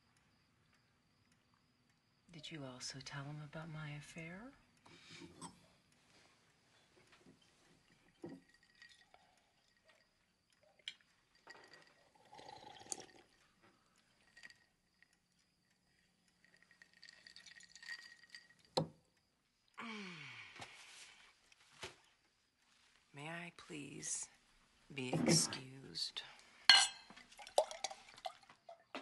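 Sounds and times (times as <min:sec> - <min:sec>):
sipping water from a glass: 0:07.4 - 0:18.8
glassware clinking: 0:26.7 - 0:28.1.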